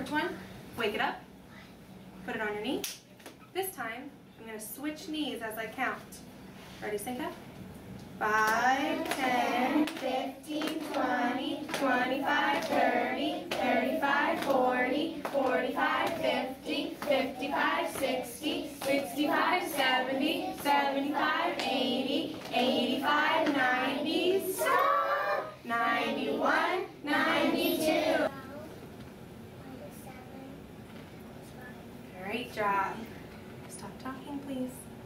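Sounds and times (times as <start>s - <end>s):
children chanting in unison: 8.6s - 28.3s.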